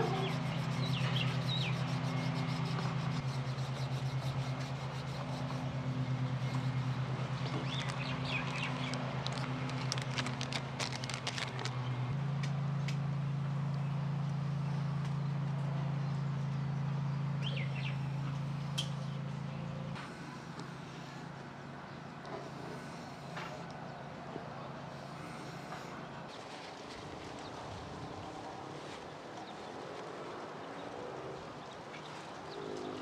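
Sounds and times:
low engine hum: 0:00.0 - 0:33.0
plastic bag crinkling: 0:07.4 - 0:11.9.

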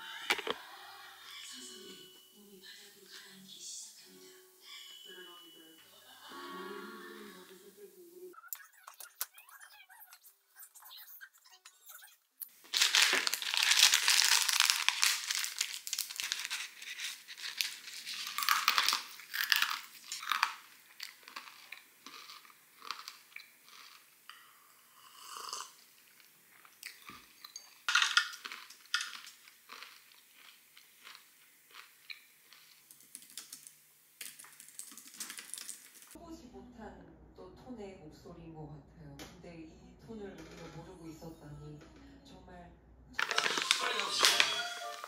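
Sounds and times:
plastic wrapper crinkling: 0:00.3 - 0:00.6, 0:12.5 - 0:23.2, 0:32.9 - 0:36.2, 0:43.2 - 0:45.0
crunchy bites and chewing: 0:12.5 - 0:24.1, 0:27.9 - 0:33.4.

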